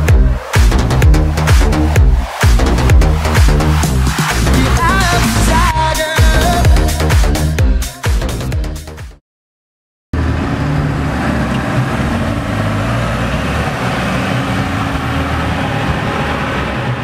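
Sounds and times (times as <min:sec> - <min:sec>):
dance music: 0:00.0 - 0:09.2.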